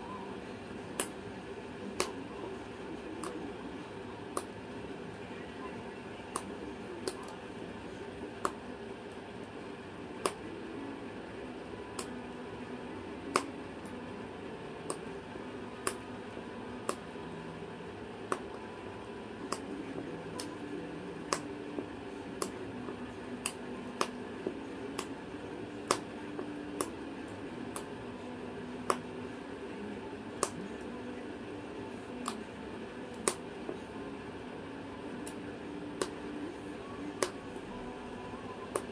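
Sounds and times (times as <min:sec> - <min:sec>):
low room hum: 0:00.0 - 0:38.9.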